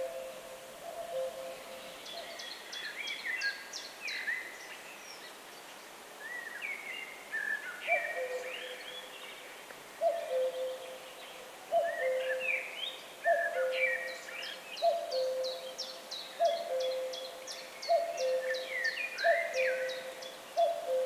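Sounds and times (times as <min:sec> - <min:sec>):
birds singing: 0:06.3 - 0:09.4, 0:10.0 - 0:21.0.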